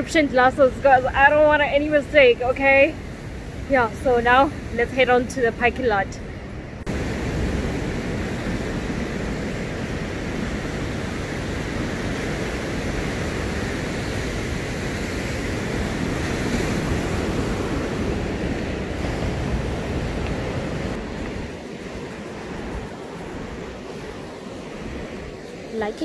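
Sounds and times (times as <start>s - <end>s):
wind buffeting microphone: 0.0s - 26.0s
surf washing onto rocks: 6.9s - 26.0s.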